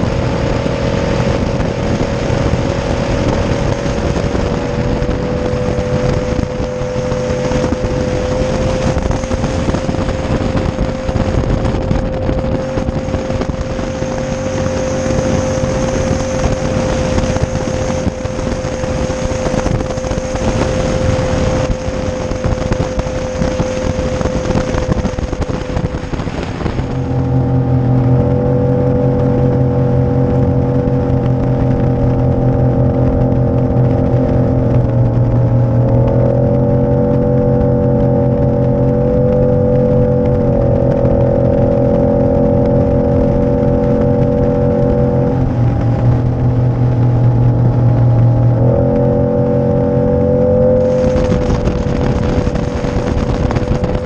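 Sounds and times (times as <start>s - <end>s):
outboard engine hum: 0.0s - 54.0s
wind and water rushing over hull: 0.0s - 54.0s.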